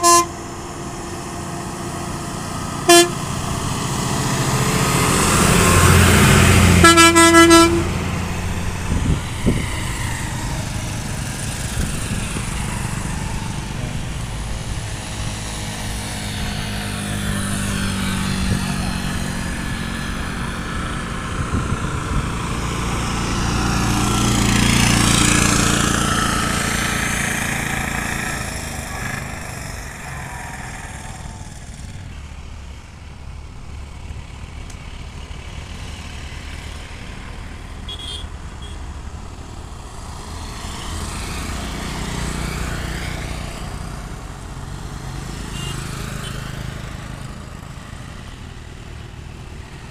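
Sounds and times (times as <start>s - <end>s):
motorcycle engine approaching: 0.0s - 49.9s
vehicles passing: 0.0s - 49.9s.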